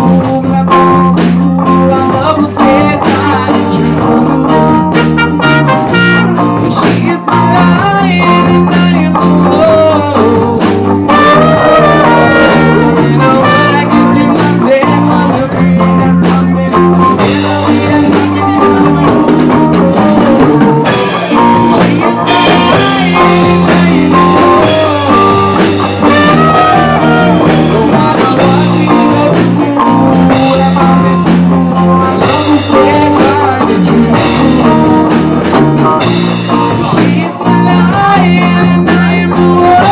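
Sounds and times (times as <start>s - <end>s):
live band playing: 0.0s - 39.9s
trumpet melody: 4.6s - 6.7s, 11.0s - 14.8s, 20.2s - 31.0s.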